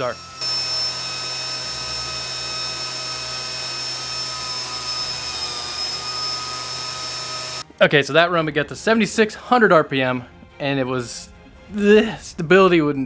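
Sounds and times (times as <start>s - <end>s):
fan motor high whine: 0.0s - 7.6s.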